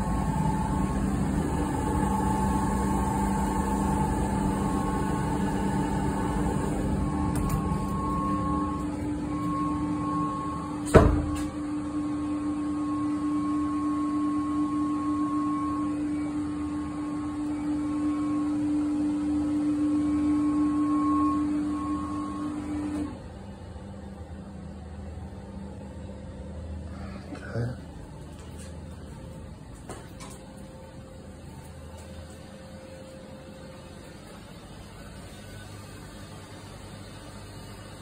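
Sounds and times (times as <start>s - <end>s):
machinery hum: 0.0s - 38.0s.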